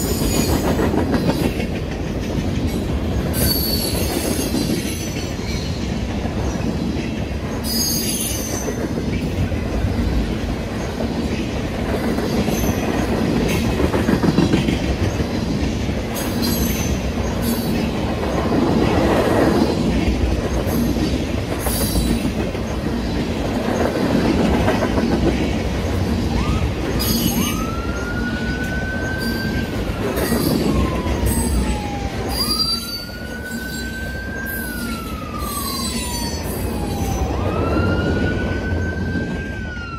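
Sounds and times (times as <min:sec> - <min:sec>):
train wheels rumbling on rails: 0:00.0 - 0:39.9
wheel squeal: 0:03.4 - 0:05.2
fire truck wail siren: 0:26.2 - 0:39.9.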